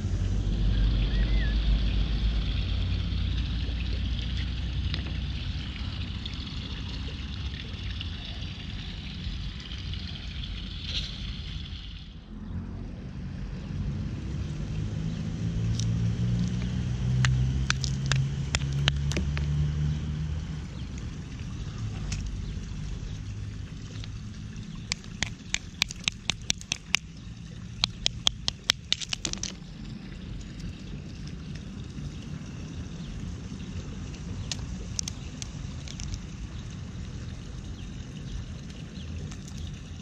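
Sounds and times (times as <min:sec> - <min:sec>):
ice clinking on brick paving: 0:17.6 - 0:19.5, 0:24.8 - 0:27.1, 0:27.8 - 0:29.7, 0:34.5 - 0:36.3.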